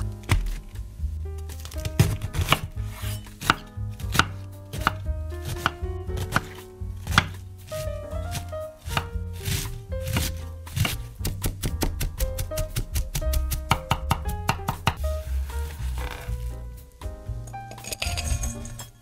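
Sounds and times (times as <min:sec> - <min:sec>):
knife slicing cabbage: 0:00.2 - 0:00.7, 0:01.5 - 0:13.6.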